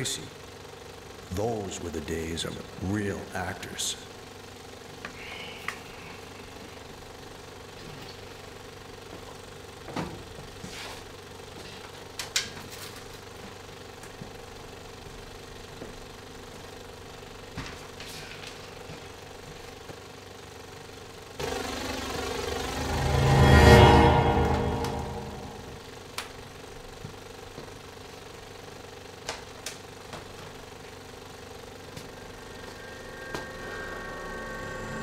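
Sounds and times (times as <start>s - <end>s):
film projector humming: 0.1s - 22.8s, 26.2s - 35.0s.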